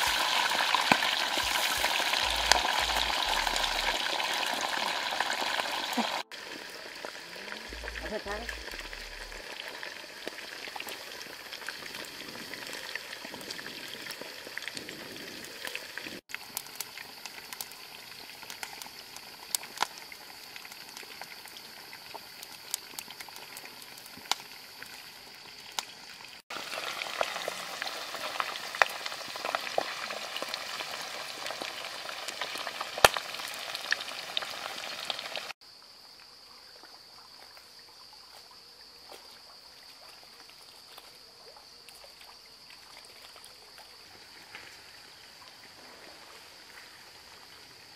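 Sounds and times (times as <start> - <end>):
high steady hiss: 0.0 - 4.2
deep-frying sizzle with pops: 0.0 - 35.6.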